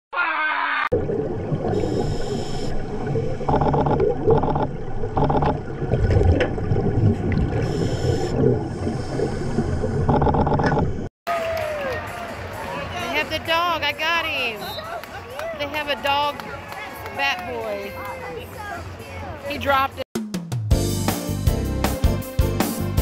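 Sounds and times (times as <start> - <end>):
regulator bubbles gurgling underwater: 0.9 - 11.1
hissing diver breaths: 7.6 - 10.0.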